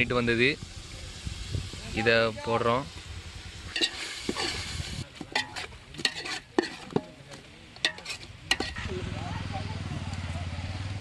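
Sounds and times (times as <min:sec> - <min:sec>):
meat sizzling: 0:00.0 - 0:07.0
ladle scraping metal pot: 0:03.7 - 0:08.9.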